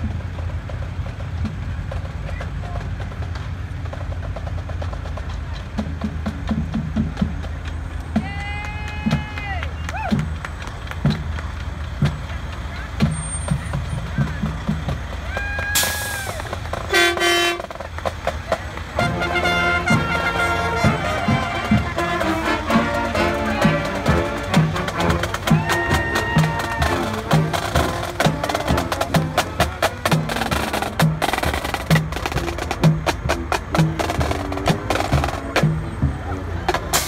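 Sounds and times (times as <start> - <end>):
music with drum beat: 0.0 - 37.0
truck air horn blasts: 16.9 - 17.8, 19.0 - 30.9.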